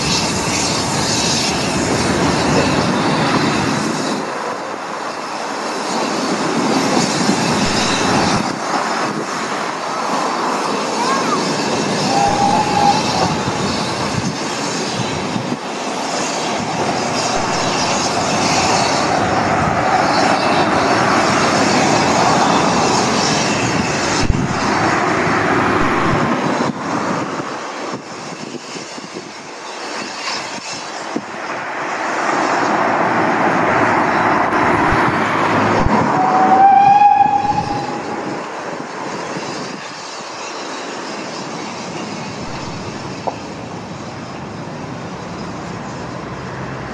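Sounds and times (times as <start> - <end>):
train wheels rumbling on rails: 0.0 - 46.9
steam locomotive whistle: 11.1 - 14.0, 36.0 - 38.3.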